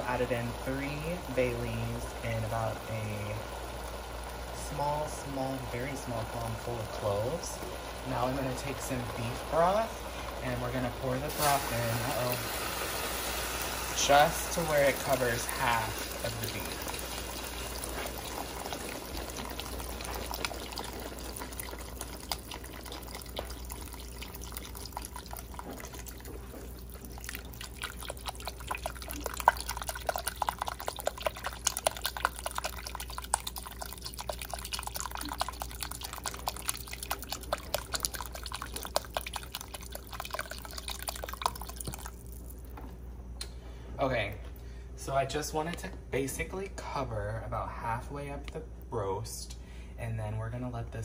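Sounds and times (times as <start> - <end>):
liquid pouring: 0.0 - 42.8
drips and small splashes: 13.2 - 42.8.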